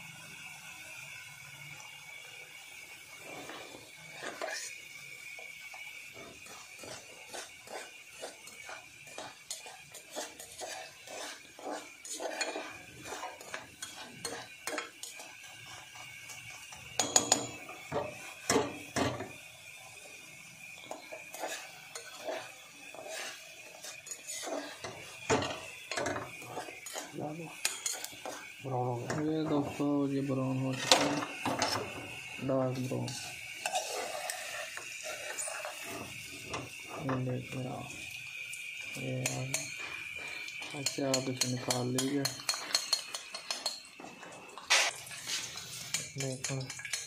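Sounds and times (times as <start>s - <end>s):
frying oil hiss: 0.0s - 47.0s
metal knife scraping saucepan: 3.3s - 4.8s, 6.2s - 16.4s, 20.8s - 32.0s, 32.7s - 37.2s, 39.2s - 44.0s, 44.7s - 47.0s.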